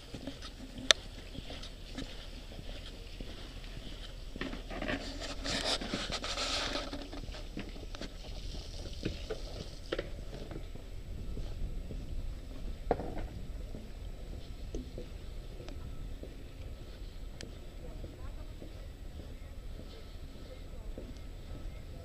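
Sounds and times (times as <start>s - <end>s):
hissing rustle: 0.0s - 10.5s
footsteps walking: 0.0s - 22.0s.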